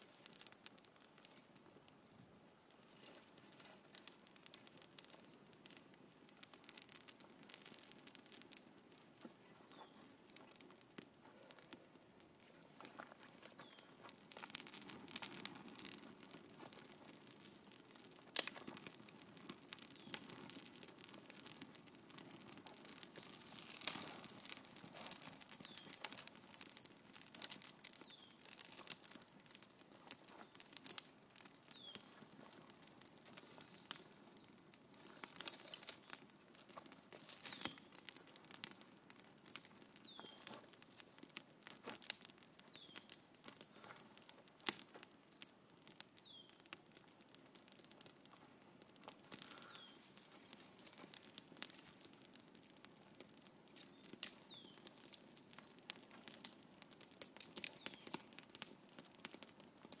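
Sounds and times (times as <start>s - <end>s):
campfire crackling and popping: 0.0s - 60.0s.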